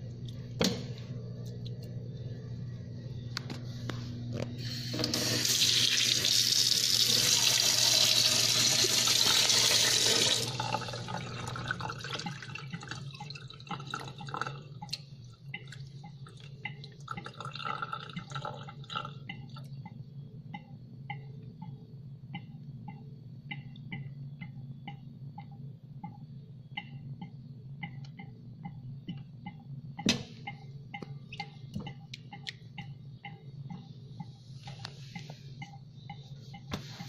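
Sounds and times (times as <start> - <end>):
steady low hum: 0.0 - 37.0
water trickling and dripping: 10.6 - 20.0.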